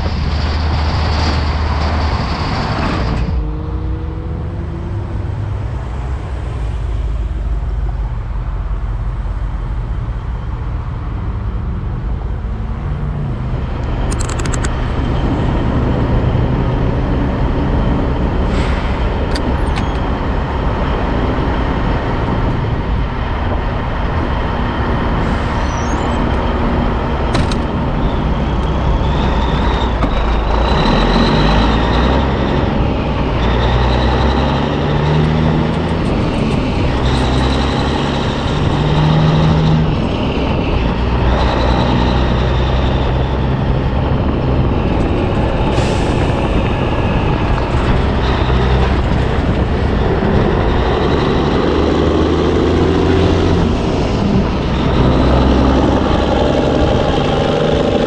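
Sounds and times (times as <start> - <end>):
road noise: 0.0 - 58.0
truck engine running: 0.0 - 58.0
short clicks: 13.8 - 14.8.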